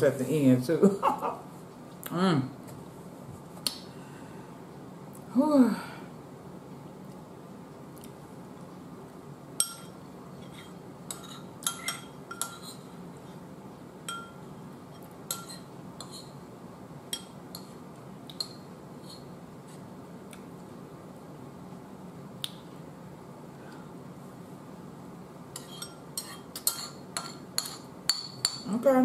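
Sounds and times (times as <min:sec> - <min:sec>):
metal spoon clinking on bowl: 0:09.6 - 0:12.7, 0:14.1 - 0:14.4, 0:25.6 - 0:28.7.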